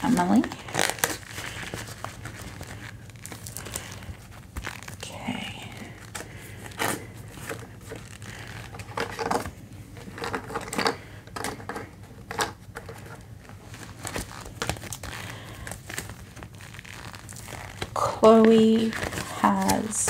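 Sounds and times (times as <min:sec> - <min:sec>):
plastic envelopes crinkling: 0:00.0 - 0:20.0.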